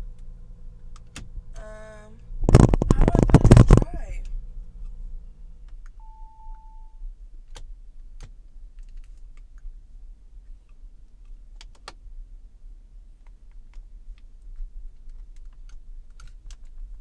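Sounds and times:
faint low hum: 0.0s - 17.0s
short electronic beep: 6.0s - 7.0s.

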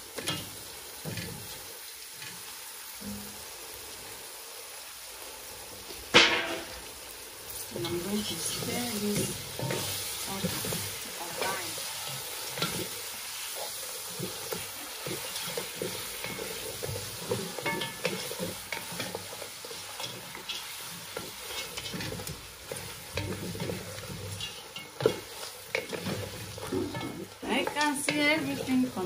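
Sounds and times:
sauce sizzling in pot: 0.0s - 29.0s
wooden spoon scraping metal pot: 7.8s - 29.0s.

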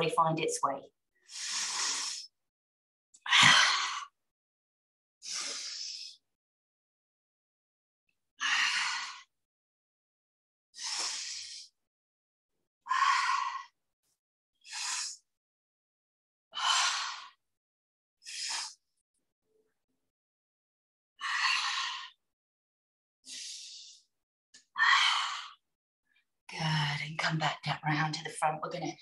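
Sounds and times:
woman breathing heavily: 1.2s - 2.3s, 3.3s - 4.2s, 5.2s - 6.2s, 10.8s - 11.8s, 12.9s - 13.8s, 16.6s - 17.4s, 21.2s - 22.2s, 23.3s - 24.1s, 24.8s - 25.6s.

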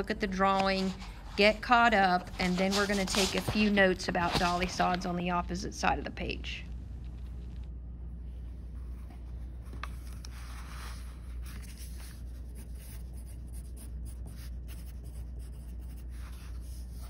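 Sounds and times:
low steady hum: 0.0s - 17.0s
pencil scratching on paper: 11.5s - 17.0s.

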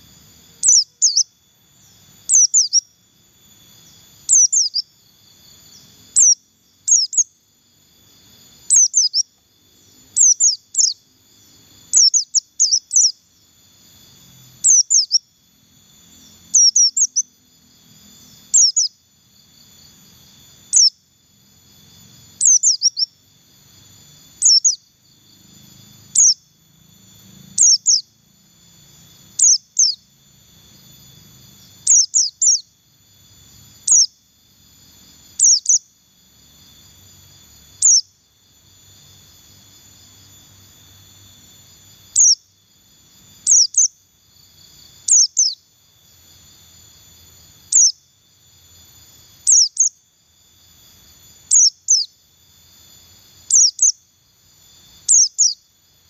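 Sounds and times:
faint steady high hum: 0.0s - 56.0s.

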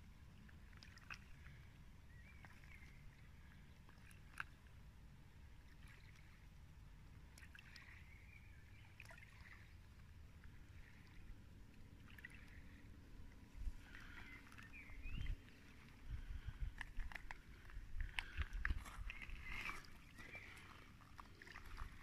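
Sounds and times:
water lapping on pebbly shore: 0.4s - 22.0s.

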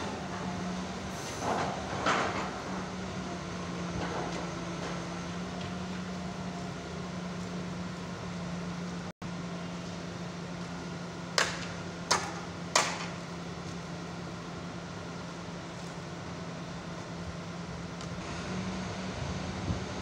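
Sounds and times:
diesel engine humming: 0.0s - 20.0s
sharp knocks: 11.4s - 13.2s.

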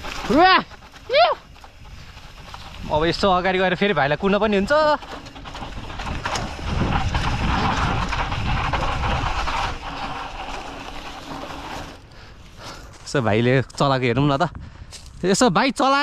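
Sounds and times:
bike tyres on dirt trail: 0.0s - 16.0s
wind on microphone: 5.5s - 10.1s.

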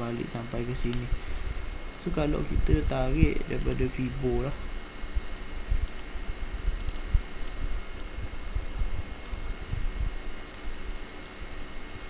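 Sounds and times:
computer mouse clicks: 3.6s - 4.0s, 5.8s - 6.1s, 6.8s - 8.2s, 9.2s - 9.5s.

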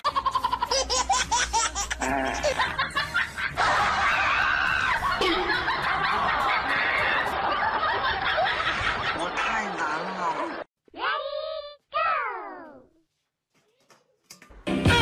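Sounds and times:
person laughing: 0.0s - 7.4s
laughing and wailing voices: 0.0s - 10.6s.

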